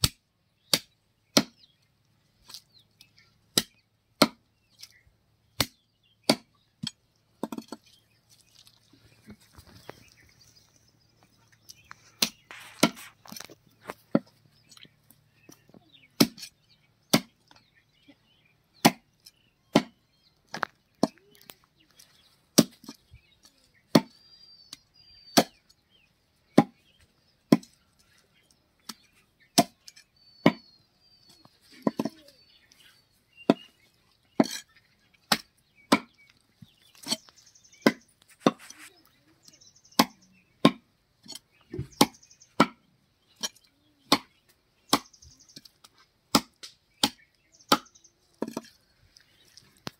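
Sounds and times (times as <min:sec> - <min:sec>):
cleaver chopping on wooden block: 0:03.5 - 0:04.4, 0:05.6 - 0:07.8, 0:16.2 - 0:16.5, 0:17.1 - 0:17.4, 0:18.8 - 0:19.1, 0:19.7 - 0:20.0, 0:22.6 - 0:23.0, 0:23.9 - 0:24.1, 0:25.4 - 0:25.6, 0:26.6 - 0:26.8, 0:27.5 - 0:27.8, 0:29.6 - 0:29.8, 0:30.4 - 0:30.6, 0:35.3 - 0:36.1, 0:37.8 - 0:38.6, 0:40.0 - 0:42.8, 0:44.1 - 0:44.3, 0:46.3 - 0:48.7.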